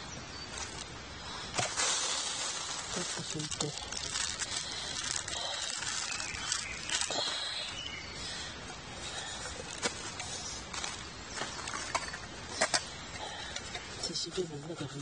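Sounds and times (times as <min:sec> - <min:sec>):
tissue paper rustling in metal cup: 0:00.5 - 0:00.8, 0:01.6 - 0:07.3.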